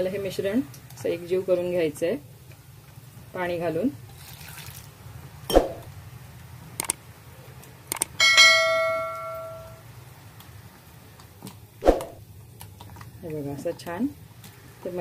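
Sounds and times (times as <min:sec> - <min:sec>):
short clicks: 0:06.8 - 0:07.0, 0:07.9 - 0:08.2
bell chime sound effect: 0:08.2 - 0:09.8.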